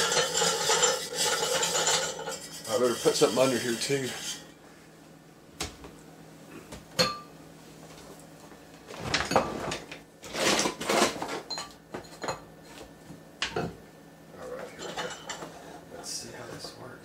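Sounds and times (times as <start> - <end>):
kitchenware clattering on countertop: 0.0 - 2.4, 14.6 - 15.6.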